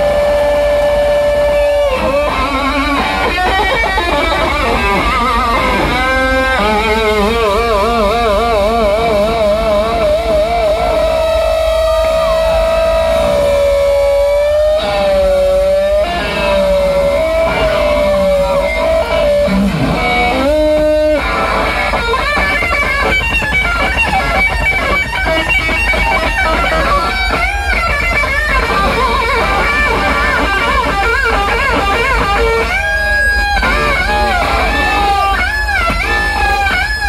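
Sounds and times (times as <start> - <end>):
electric guitar soloing: 0.0 - 37.0.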